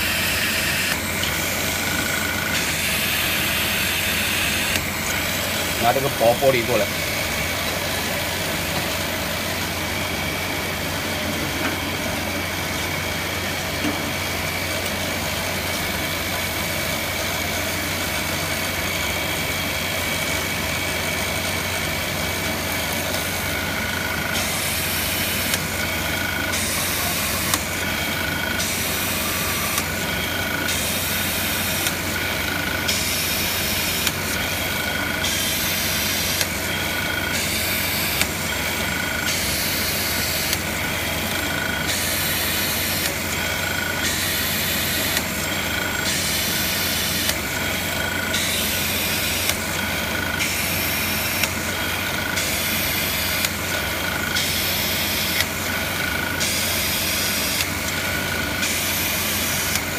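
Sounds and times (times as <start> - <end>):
drill press motor running: 0.0 - 59.9.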